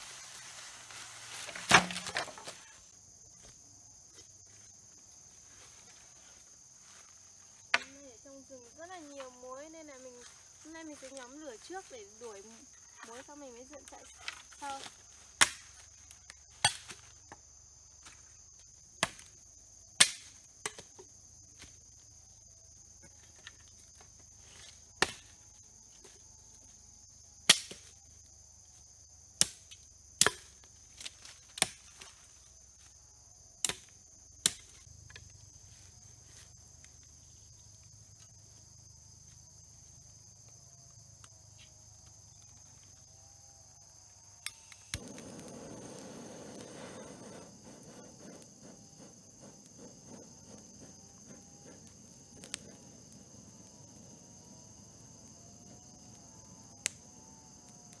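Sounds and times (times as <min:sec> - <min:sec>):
insects chirring: 0:00.0 - 0:58.0
firewood being chopped: 0:01.4 - 0:02.7, 0:07.6 - 0:08.0, 0:15.4 - 0:17.4, 0:19.0 - 0:19.4, 0:20.0 - 0:21.0, 0:24.6 - 0:25.4, 0:27.4 - 0:27.9, 0:29.4 - 0:32.2, 0:33.6 - 0:35.2.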